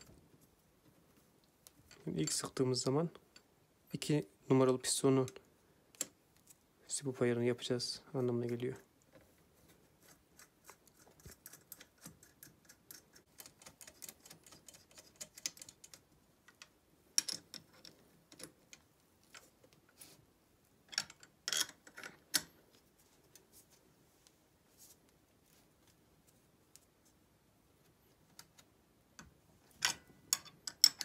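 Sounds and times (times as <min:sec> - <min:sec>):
spanner clicking on metal parts: 0:29.8 - 0:31.0.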